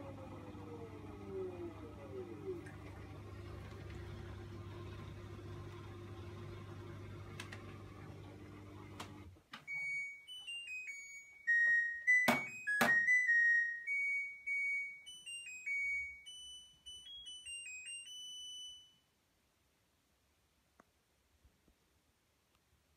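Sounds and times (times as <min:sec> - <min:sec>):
washing machine motor hum: 0:00.0 - 0:09.4
electronic tune of high beeps: 0:09.7 - 0:19.0.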